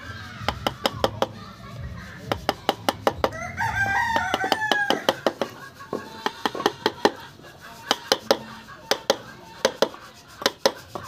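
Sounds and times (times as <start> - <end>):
chisel tapping into wood: 2.3 - 3.4, 4.2 - 7.2, 7.9 - 10.8
rooster crowing: 3.2 - 5.4.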